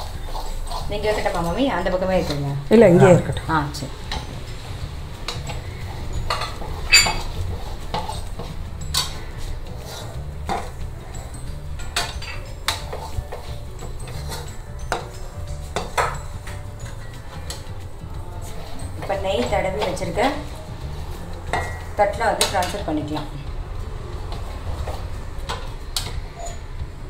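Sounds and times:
spatula scraping pan: 0.0s - 2.6s, 4.0s - 17.8s
spatula clinking against pan: 5.3s - 17.8s, 21.5s - 22.9s.

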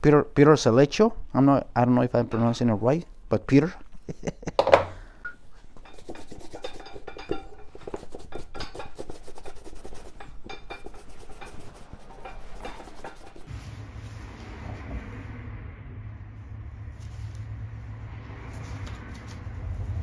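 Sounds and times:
hand tool scraping leather: 5.8s - 13.5s.

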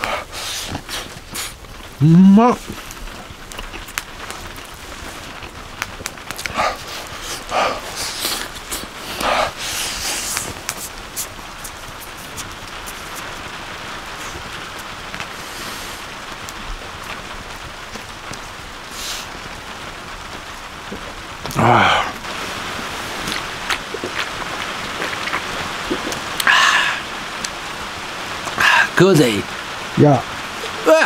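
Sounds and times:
people chewing: 0.0s - 13.4s, 20.9s - 27.6s
background hiss: 0.0s - 31.0s.

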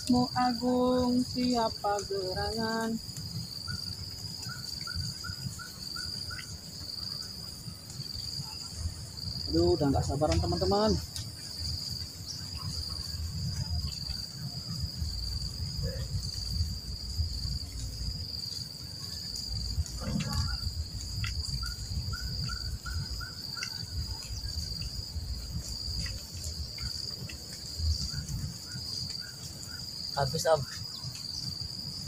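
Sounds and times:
insects droning: 0.0s - 32.0s
low rumbling noise: 19.2s - 22.9s.

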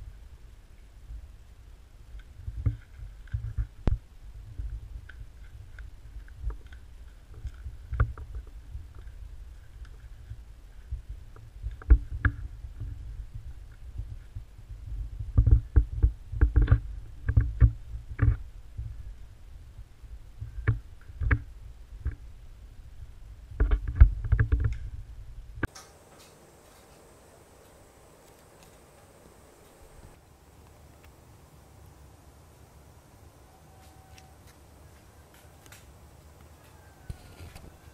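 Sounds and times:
low rumbling noise: 0.0s - 33.5s.

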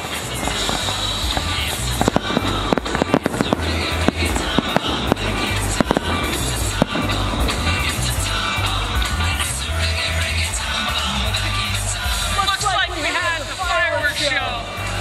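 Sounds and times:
fireworks bursting: 0.0s - 10.5s
music with thumping bass: 0.0s - 15.0s.

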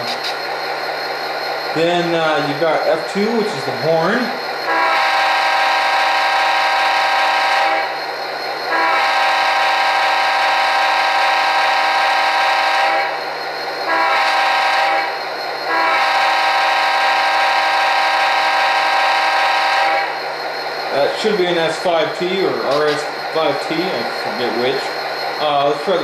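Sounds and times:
model train air horn blasts: 4.7s - 8.0s, 8.7s - 13.2s, 13.9s - 20.2s
faint diesel idle: 20.1s - 26.0s.

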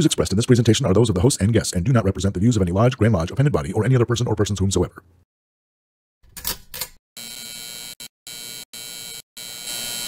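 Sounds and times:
neon sign electric buzz: 7.2s - 10.0s.

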